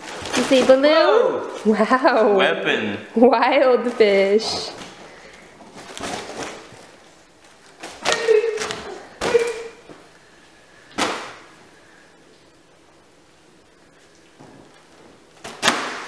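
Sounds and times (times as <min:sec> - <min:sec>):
foil balloon thumps: 0:15.4 - 0:16.0.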